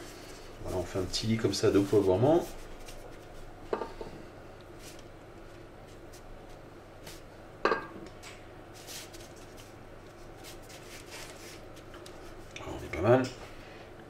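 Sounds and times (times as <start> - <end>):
paper rustling: 0.2 - 3.5, 8.8 - 12.5.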